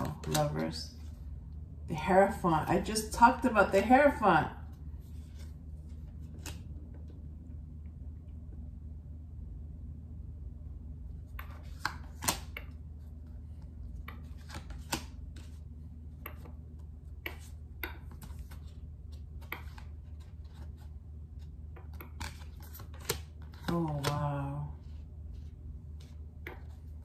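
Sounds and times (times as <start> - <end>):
cards being shuffled: 0.0 - 1.3, 5.0 - 7.0, 11.4 - 15.8, 16.4 - 27.0
steady low hum: 0.0 - 27.0.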